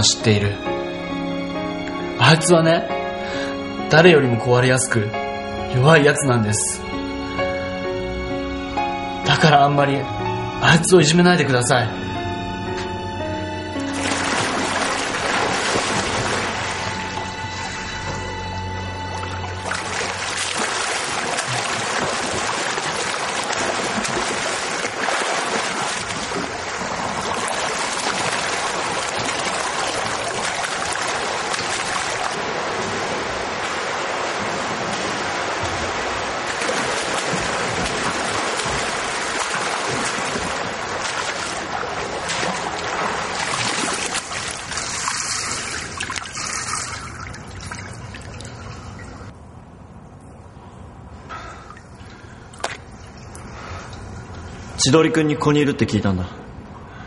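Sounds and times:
water splashing from swimmer: 13.8s - 18.2s, 19.2s - 49.3s, 51.5s - 54.7s.

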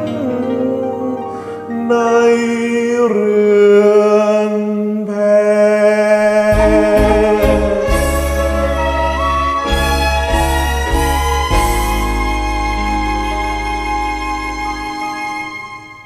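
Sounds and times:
man singing long notes: 0.0s - 9.7s
karaoke ballad backing track: 0.0s - 16.0s
bass and drum beat: 6.5s - 13.4s.

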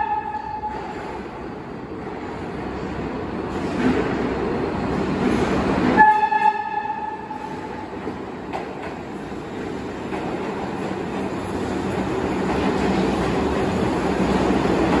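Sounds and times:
train horn blast: 0.0s - 0.9s, 6.0s - 7.5s
subway train rumbling: 0.0s - 15.0s.

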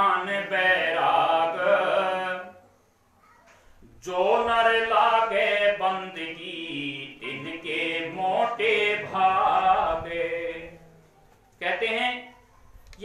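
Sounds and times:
man chanting into microphone: 0.0s - 2.6s, 4.0s - 11.0s, 11.6s - 12.3s.

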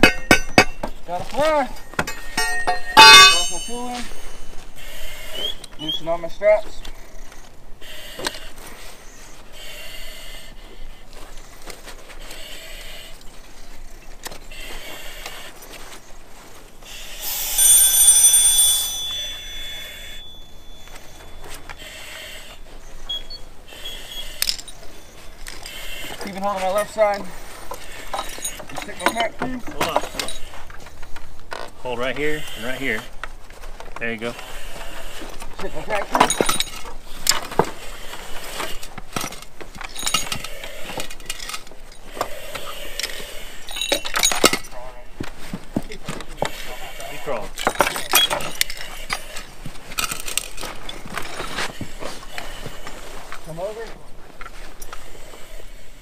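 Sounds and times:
shrill electronic alarm tone: 16.8s - 22.5s.

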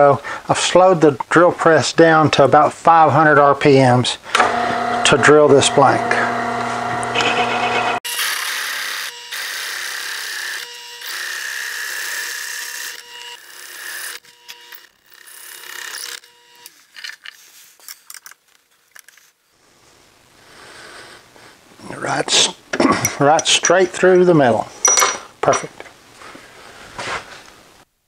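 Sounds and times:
motor whine: 4.3s - 14.9s
drill bit boring through wood: 4.4s - 16.7s.

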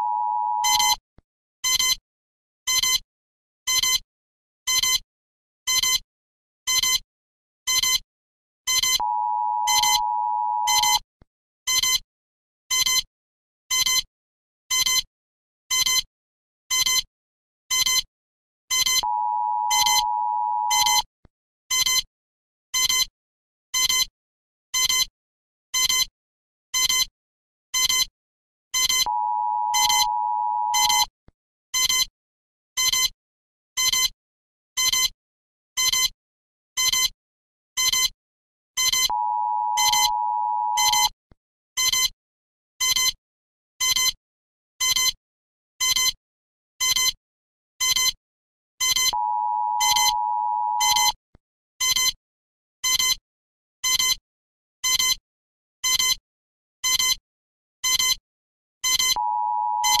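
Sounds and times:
short electronic alarm beeps: 0.0s - 1.0s, 8.7s - 11.0s, 18.7s - 21.1s, 28.8s - 31.1s, 38.8s - 41.2s, 48.8s - 51.2s, 58.9s - 60.0s.

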